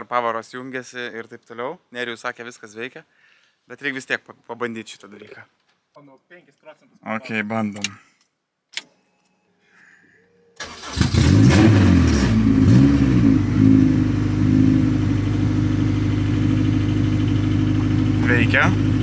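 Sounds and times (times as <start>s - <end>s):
car engine starting and revving: 10.6s - 19.0s
engine idling: 13.3s - 19.0s.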